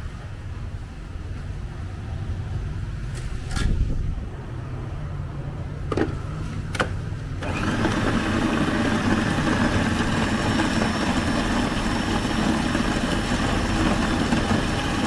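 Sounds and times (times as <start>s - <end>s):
food processor motor grinding: 7.4s - 15.0s.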